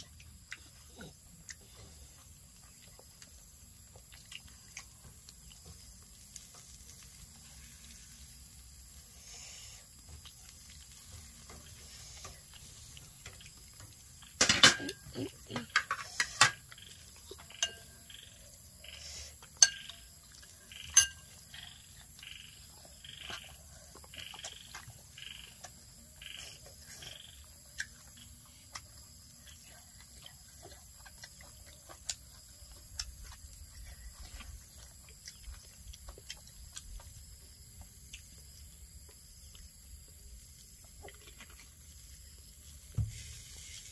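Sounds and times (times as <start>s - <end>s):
frog calling: 20.7s - 27.5s
spoon clinking on plate: 20.9s - 21.3s.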